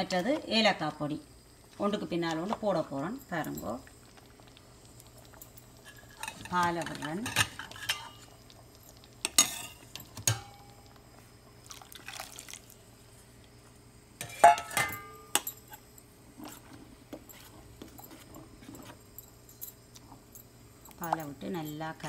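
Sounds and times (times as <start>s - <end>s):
spoon clinking on metal pot: 9.3s - 10.6s.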